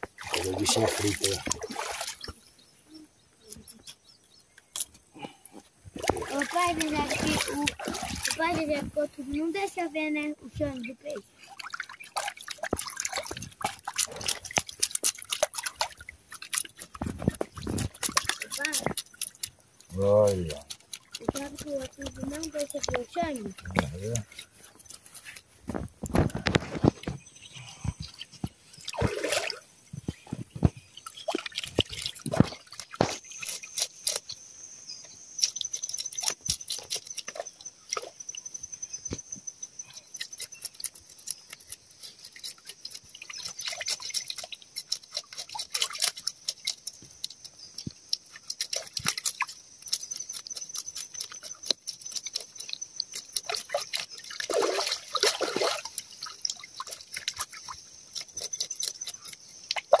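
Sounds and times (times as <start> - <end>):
water splashing and dripping: 0.0 - 2.4, 5.9 - 34.4, 35.4 - 38.5, 40.1 - 60.0
knife scraping fish scales: 12.3 - 26.8, 31.6 - 34.4, 35.4 - 38.1, 39.9 - 54.6, 56.0 - 60.0.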